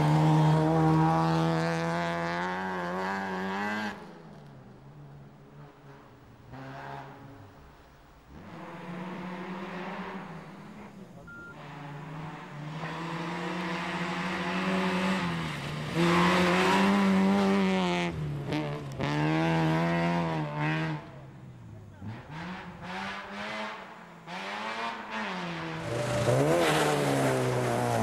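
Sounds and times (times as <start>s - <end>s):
rally car engine revving: 0.0s - 4.4s, 5.5s - 28.0s.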